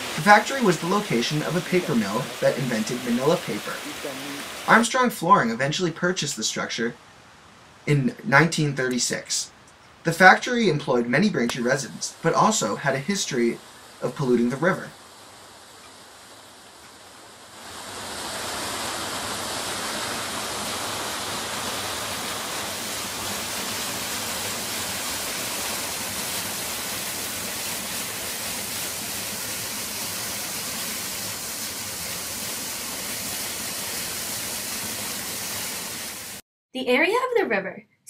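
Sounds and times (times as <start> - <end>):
whitewater rushing over boulders: 0.0 - 4.9, 17.6 - 36.4.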